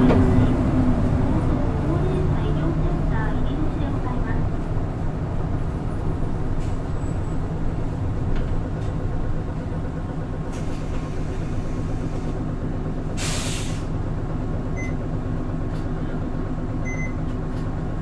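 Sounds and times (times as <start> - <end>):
bus engine running: 0.0 - 18.0
compressed air hiss: 13.2 - 13.9.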